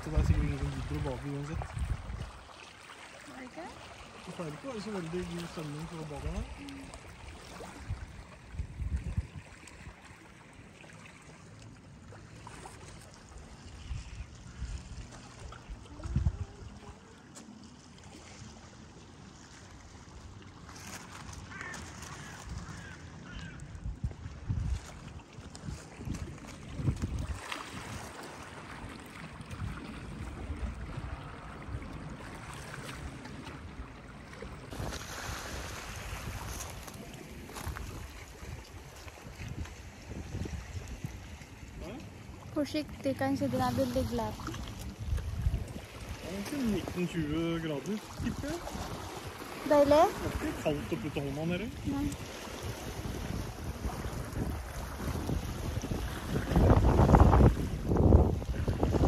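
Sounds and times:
wind buffeting microphone: 0.0 - 2.4, 7.7 - 10.0, 13.8 - 17.0, 22.2 - 33.8, 34.6 - 59.0
faint wash of water: 0.0 - 59.0
small waves on shore: 0.0 - 59.0.

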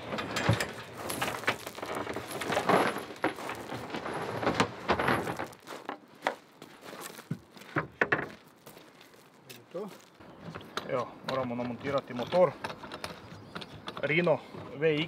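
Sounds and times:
boat hull scraping: 0.0 - 5.7
boat hull knocks and clicks: 10.4 - 15.0.

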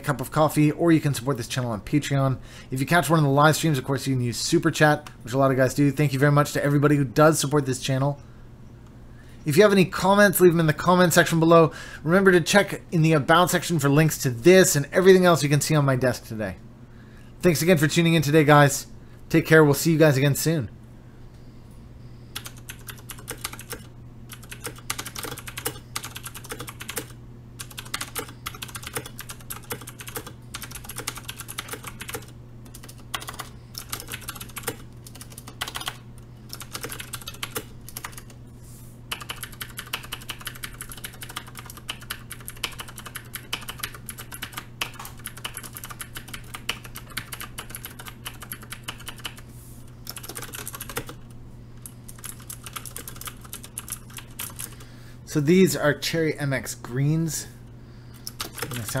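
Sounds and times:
fast typing on mechanical keyboard: 22.4 - 38.4, 39.1 - 49.4, 50.0 - 51.2, 51.8 - 54.8, 58.3 - 59.0.

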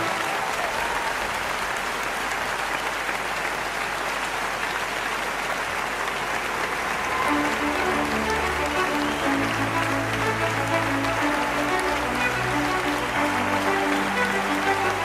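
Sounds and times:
music: 0.0 - 0.6, 7.0 - 15.0
audience applauding: 0.0 - 15.0.

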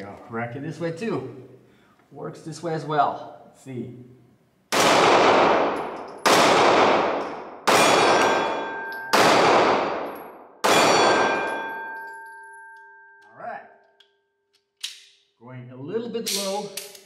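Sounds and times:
pistol shots ringing: 4.7 - 12.7.

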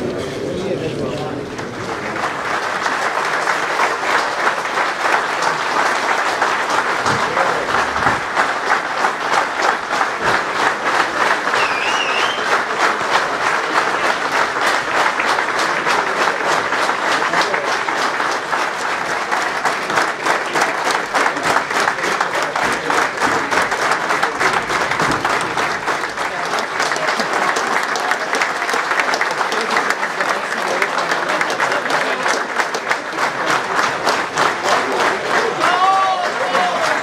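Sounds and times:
crowd applauding: 0.0 - 37.0.

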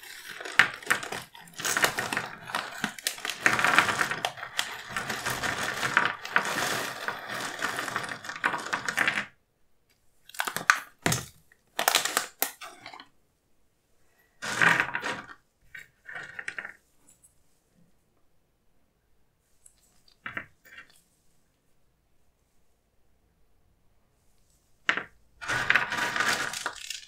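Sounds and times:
foil pouch crinkling: 0.0 - 9.0, 25.4 - 27.0
cereal pouring onto paper: 0.0 - 9.3, 14.4 - 15.3, 25.4 - 27.0.

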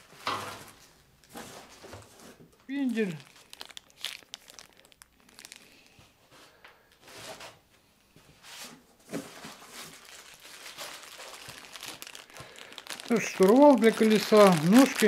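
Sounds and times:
plastic bags crinkling: 2.7 - 6.1, 9.2 - 15.0.

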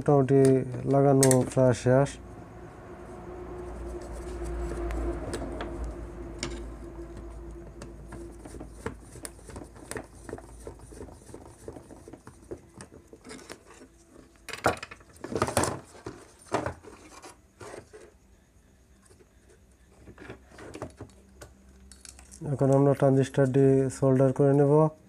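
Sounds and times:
low hum: 1.6 - 8.6
knocks and scrapes of board: 6.4 - 18.2.

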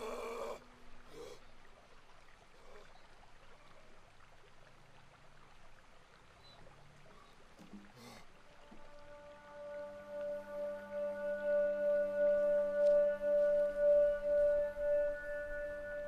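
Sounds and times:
faint even hiss: 5.9 - 16.0.

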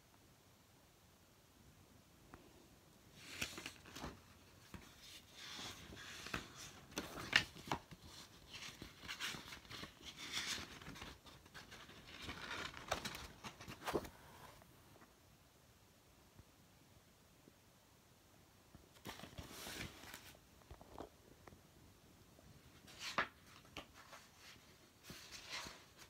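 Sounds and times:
paper rustling and crinkling: 3.1 - 14.6, 18.9 - 21.1, 22.7 - 26.0.

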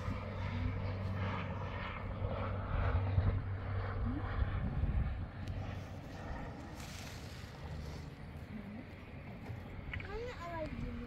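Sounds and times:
drone propellers humming: 0.0 - 11.0.

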